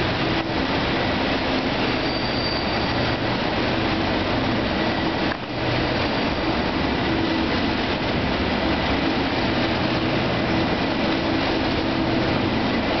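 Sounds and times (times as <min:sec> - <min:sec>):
diesel locomotive engine running: 0:00.0 - 0:13.0.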